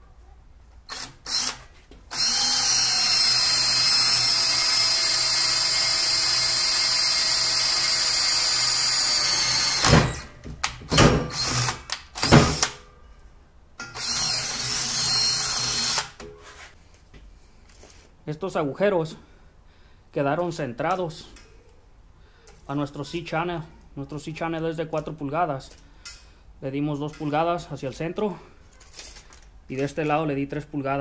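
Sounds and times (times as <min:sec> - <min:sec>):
cordless drill boring steel: 0:00.9 - 0:10.3, 0:11.3 - 0:12.8, 0:13.9 - 0:16.2.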